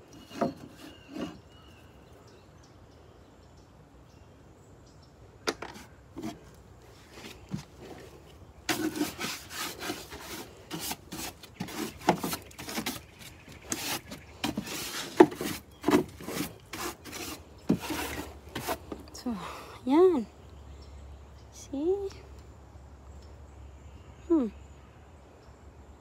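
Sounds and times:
scraping and rubbing on wood: 0.0 - 1.6, 5.5 - 19.2.

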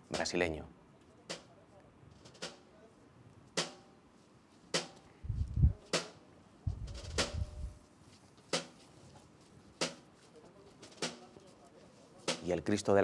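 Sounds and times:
procession drum beating slowly: 4.7 - 7.8
deep rumble: 5.3 - 5.8.

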